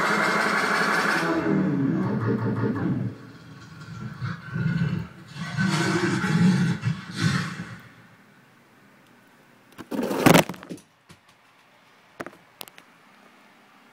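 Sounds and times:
dubstep with growling bass: 1.5s - 7.8s.

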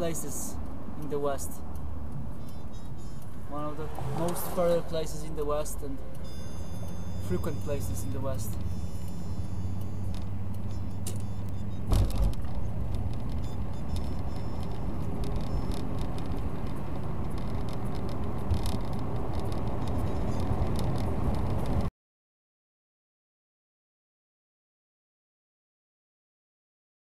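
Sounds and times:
car engine and road noise: 0.0s - 21.9s
thump: 11.9s - 12.4s
small rattles and clicks: 12.0s - 21.9s.

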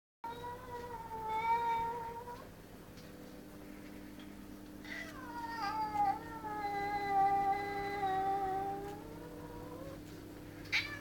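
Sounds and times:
cat yowling: 4.9s - 10.0s, 10.7s - 11.0s.

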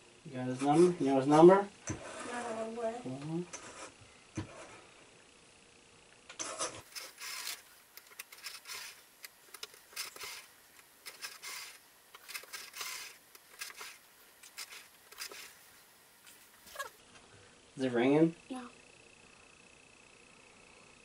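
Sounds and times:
rotary telephone dial spinning: 6.4s - 15.6s.

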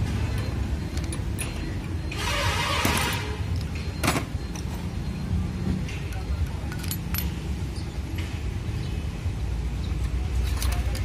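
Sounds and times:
metal clicks and clinks: 0.3s - 1.9s, 5.9s - 7.6s, 10.3s - 11.0s.

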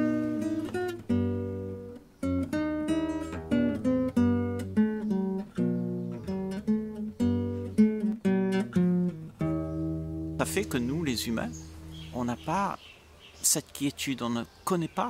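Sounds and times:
guitar plucked notes and chords: 0.0s - 12.7s.

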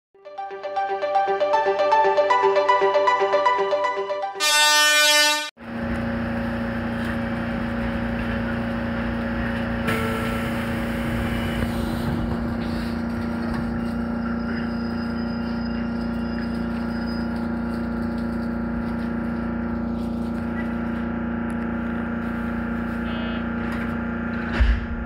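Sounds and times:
title music: 0.2s - 4.6s
electric train humming: 0.3s - 25.0s
train horn: 4.4s - 5.5s.

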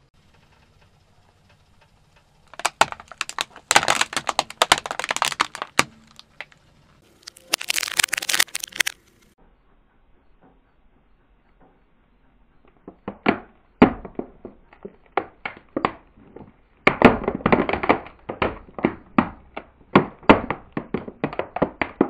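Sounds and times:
plastic cracking under car tyre: 2.4s - 9.0s, 12.7s - 22.0s.

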